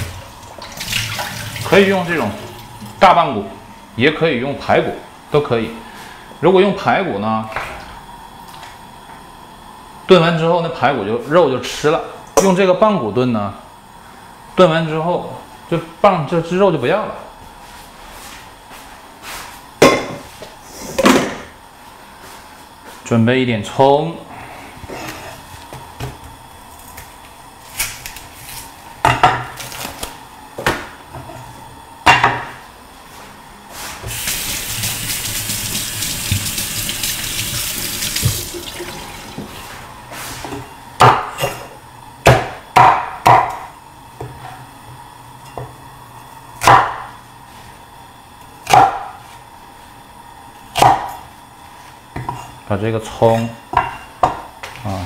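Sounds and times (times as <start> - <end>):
kitchen tap running: 0.0 - 3.0, 34.0 - 39.6
cleaver chopping on wooden board: 42.3 - 43.6, 46.6 - 47.1, 48.6 - 49.2, 50.8 - 51.1.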